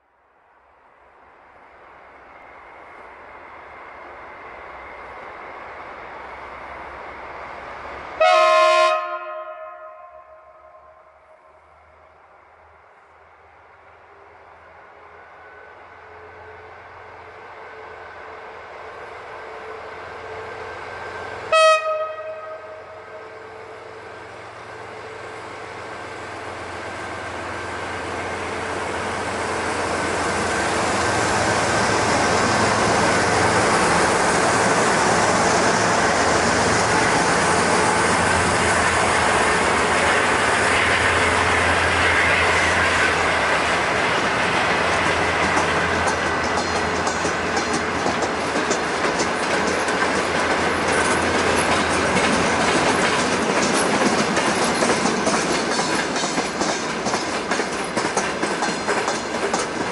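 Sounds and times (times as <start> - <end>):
wheels rumbling on rail: 0.4 - 59.9
train horn blast: 8.2 - 11.6, 21.5 - 23.8.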